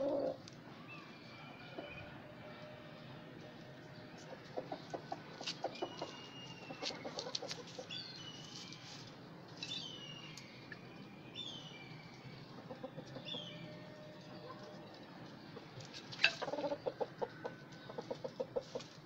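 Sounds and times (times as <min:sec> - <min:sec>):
chickens clucking: 0:00.0 - 0:00.4, 0:03.9 - 0:09.8, 0:12.4 - 0:19.0
beaks pecking clay dish: 0:15.8 - 0:17.0.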